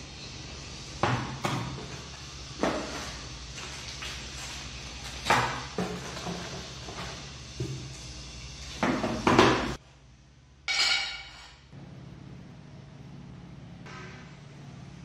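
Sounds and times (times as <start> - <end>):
objects knocking on workbench: 8.8 - 9.8.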